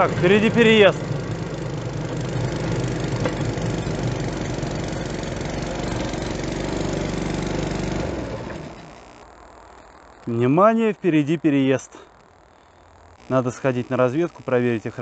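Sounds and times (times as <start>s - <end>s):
small railcart engine running: 0.0s - 9.2s.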